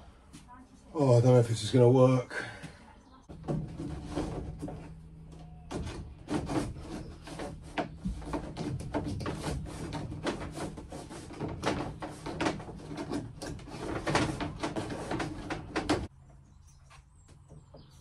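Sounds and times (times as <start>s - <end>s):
cable rubbing and scraping: 3.3s - 16.1s.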